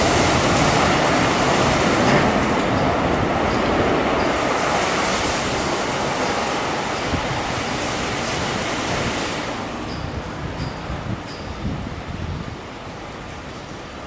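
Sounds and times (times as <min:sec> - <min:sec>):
car wash brushes and water spray: 0:04.3 - 0:09.9.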